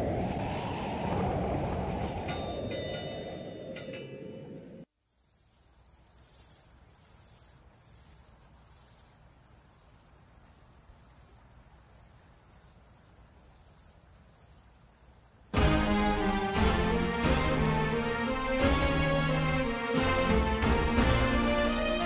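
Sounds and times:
crickets chirping: 5.0s - 15.6s.

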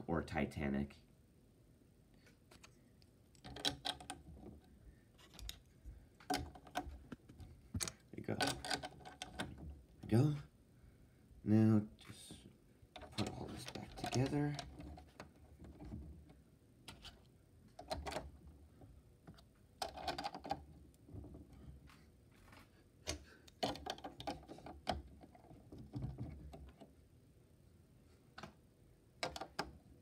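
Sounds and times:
plastic bricks clicking together: 3.3s - 4.2s, 7.8s - 9.6s, 19.8s - 20.6s, 23.1s - 25.1s, 29.2s - 29.7s.

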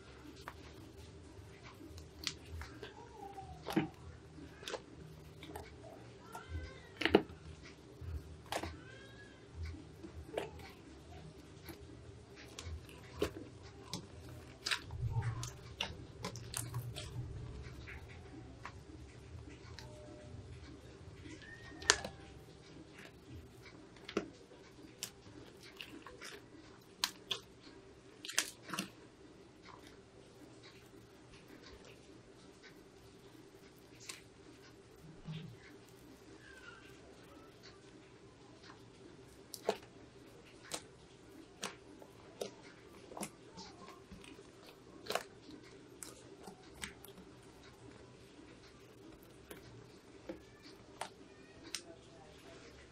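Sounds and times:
slime being kneaded: 0.0s - 20.0s, 21.2s - 29.0s, 38.6s - 52.9s.

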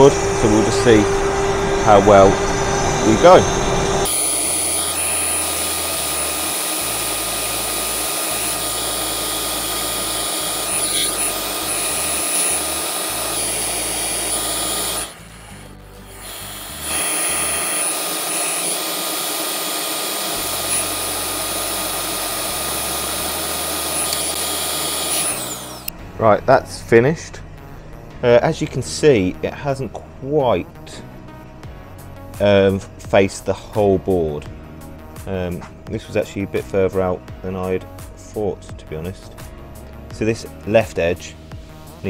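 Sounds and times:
router spindle cutting wood: 0.0s - 26.0s
dust extractor running: 0.0s - 26.6s.

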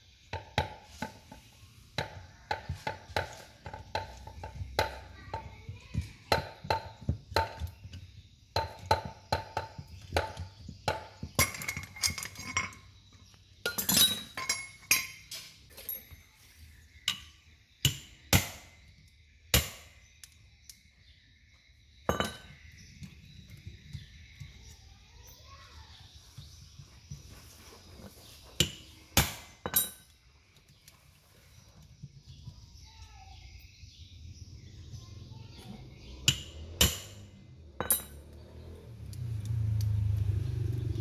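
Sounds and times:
tools tapping on metal: 8.6s - 13.0s, 13.6s - 16.2s, 17.0s - 18.5s, 28.6s - 30.2s, 36.2s - 37.2s, 37.8s - 38.4s.

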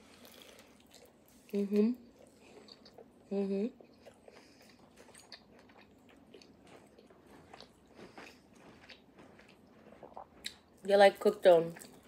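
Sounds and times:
chewing with wet mouth clicks: 3.8s - 10.8s.

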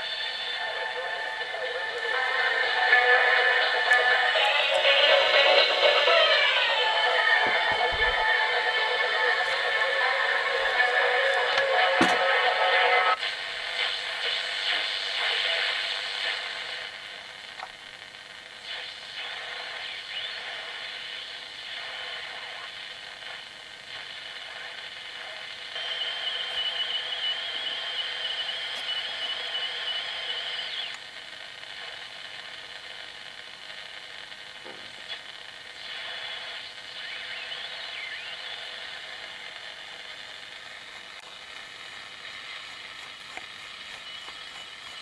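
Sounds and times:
radio hiss and static: 0.0s - 45.0s
high steady whistle: 25.8s - 31.0s.

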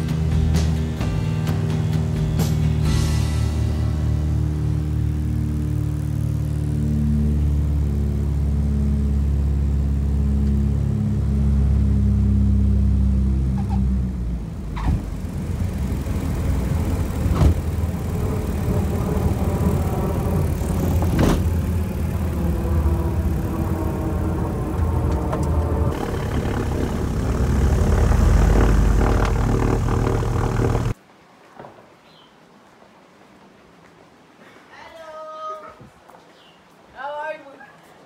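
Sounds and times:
plane engines droning: 2.0s - 31.0s.

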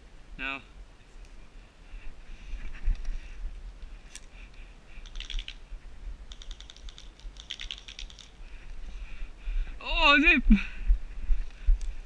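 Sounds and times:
wind rumbling on microphone: 4.7s - 12.0s
airsoft gun firing rapid clicks: 5.0s - 5.6s, 6.3s - 8.4s.

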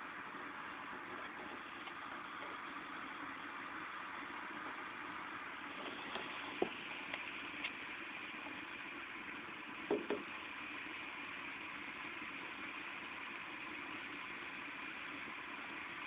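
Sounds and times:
rain hissing: 0.0s - 16.0s
soft knocks: 9.9s - 10.3s.

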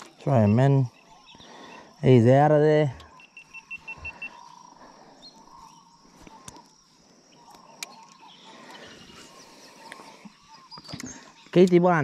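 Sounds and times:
sharp clicks: 10.8s - 12.0s.

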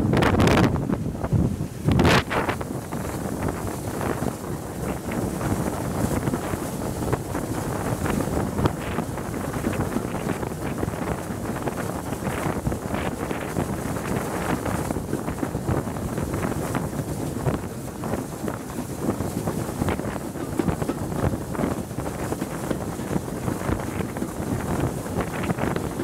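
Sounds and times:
wind buffeting microphone: 0.0s - 26.0s
steam train rushing and rattling: 13.7s - 26.0s.

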